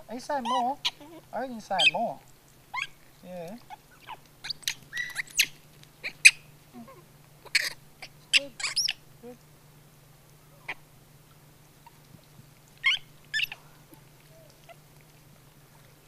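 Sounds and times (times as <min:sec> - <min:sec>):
macaques squeaky calls: 0:00.3 - 0:02.1, 0:02.7 - 0:03.0, 0:03.6 - 0:09.1, 0:10.6 - 0:10.9, 0:12.8 - 0:14.8.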